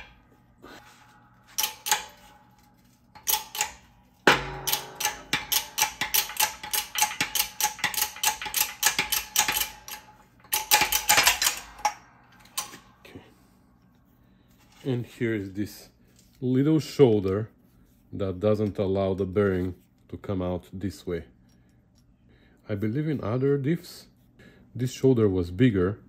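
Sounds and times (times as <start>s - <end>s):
rapid sharp metallic clicks: 1.6s - 2.2s, 3.2s - 12.8s
loud metal crack: 3.2s - 12.9s.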